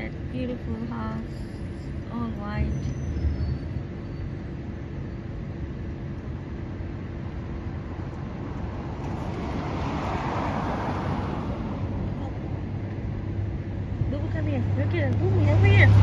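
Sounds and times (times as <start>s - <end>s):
road traffic rumble: 0.0s - 16.0s
vehicle passing: 7.3s - 16.0s.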